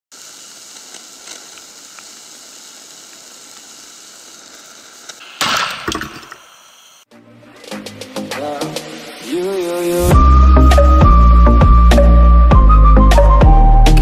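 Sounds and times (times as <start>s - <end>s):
gas torch hissing: 0.1s - 7.1s
can bursting with loud bang: 5.2s - 6.6s.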